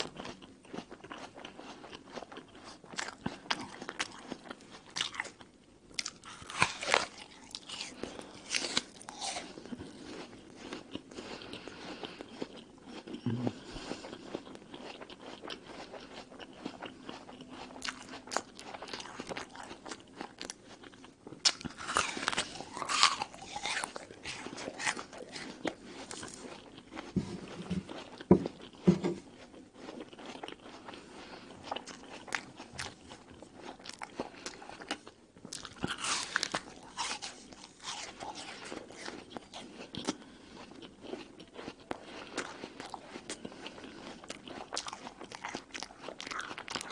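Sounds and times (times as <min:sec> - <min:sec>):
apple bite crunching: 0:14.0 - 0:28.8, 0:31.6 - 0:46.9
wet chewing: 0:29.4 - 0:46.9.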